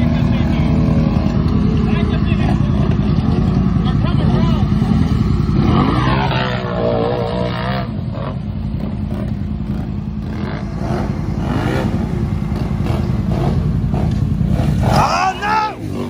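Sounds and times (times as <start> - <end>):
off-road engines revving: 0.0 - 16.0.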